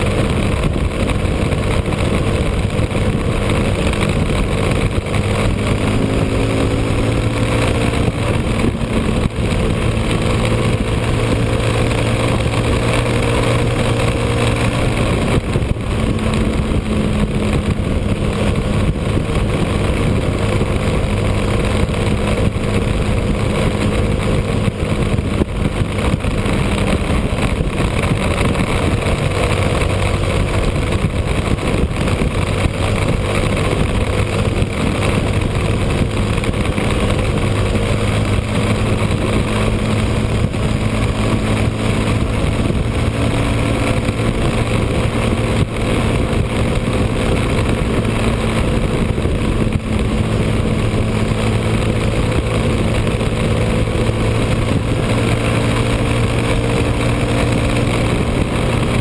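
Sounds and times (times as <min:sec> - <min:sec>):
motorcycle engine cruising: 0:00.0 - 0:59.0
wind rush on microphone: 0:00.0 - 0:59.0.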